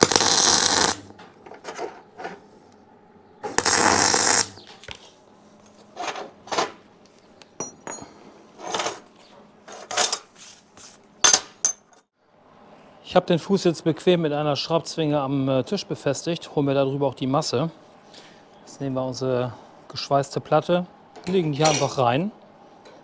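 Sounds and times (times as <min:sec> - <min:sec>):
welder crackling hiss: 0:00.0 - 0:01.1, 0:03.5 - 0:04.6
metallic clinks of steel parts: 0:07.6 - 0:08.2.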